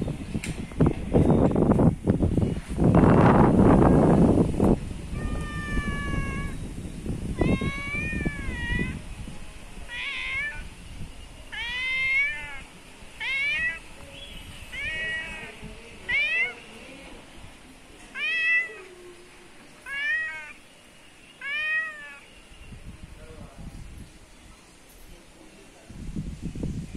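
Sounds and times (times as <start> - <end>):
cat meowing: 5.1 - 6.6, 7.3 - 9.0, 9.9 - 10.7, 11.5 - 13.9, 14.7 - 16.7, 18.1 - 19.0, 19.8 - 20.6, 21.4 - 22.3.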